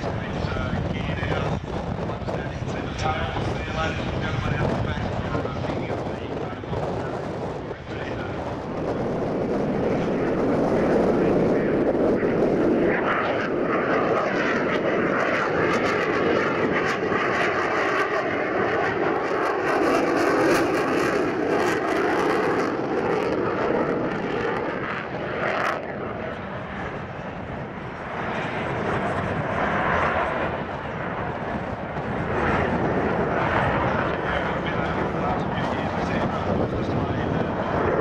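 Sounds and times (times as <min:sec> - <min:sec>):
jet engine roar: 0:00.0 - 0:38.0.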